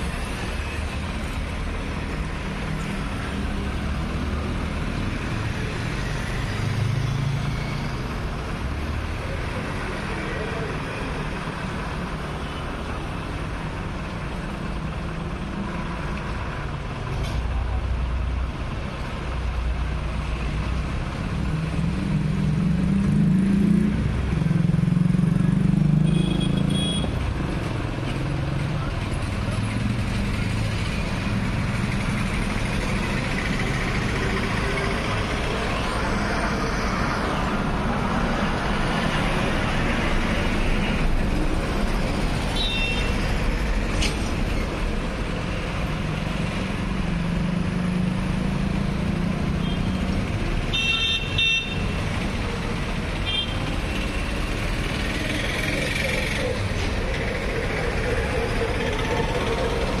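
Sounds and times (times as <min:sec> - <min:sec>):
street traffic rumble: 0:00.0 - 1:00.0
vehicle horn honks: 0:26.1 - 0:27.1, 0:50.7 - 0:51.8.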